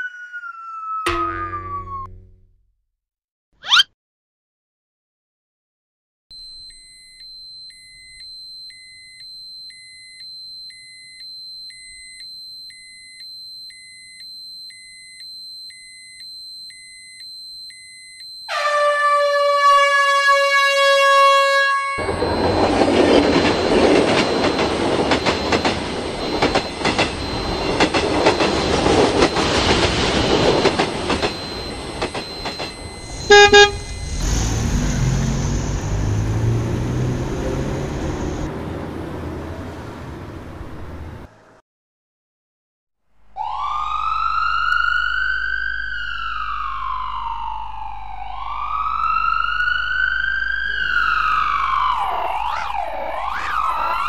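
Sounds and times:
railroad crossing alarm beeping: 6.3 - 38.5, 47.9 - 54.0
train horn: 18.5 - 22.1, 33.3 - 33.8
train passing rushing: 22.0 - 41.3
car engine: 22.0 - 41.5.

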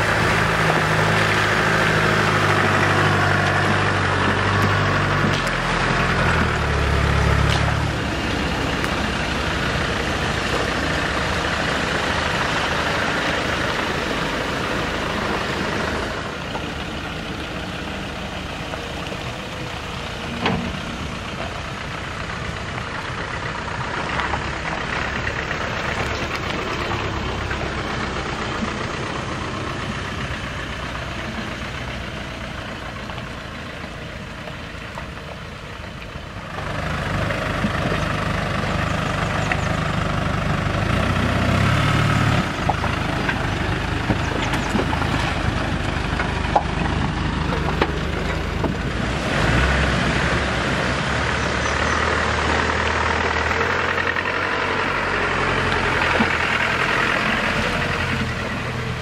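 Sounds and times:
off-road vehicle engines idling: 0.0 - 59.0.

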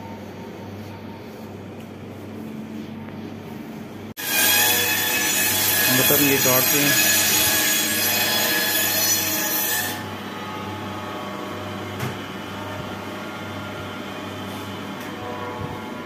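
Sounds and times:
band saw cutting meat: 4.2 - 10.5.

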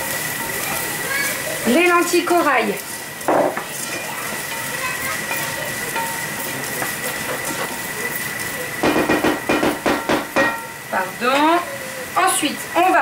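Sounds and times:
vegetables sizzling in frying pan: 0.0 - 13.0
spatula stirring: 1.2 - 10.8
louder knocks: 8.8 - 10.6.

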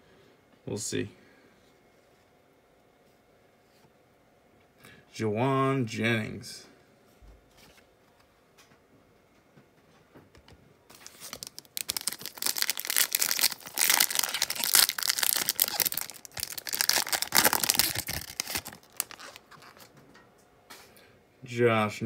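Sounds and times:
plastic wrapper crackling: 10.9 - 19.9.

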